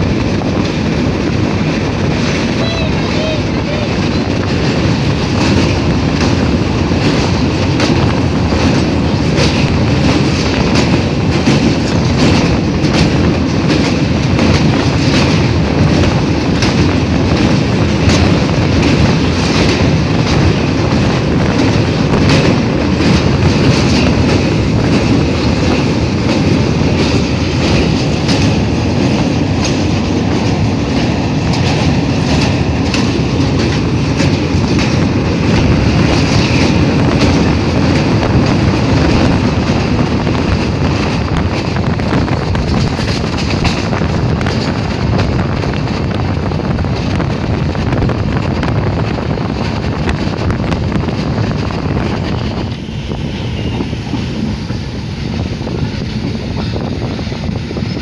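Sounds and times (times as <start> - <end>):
train rumbling over bridge: 0.0 - 58.0
train wheels clicking: 0.0 - 58.0.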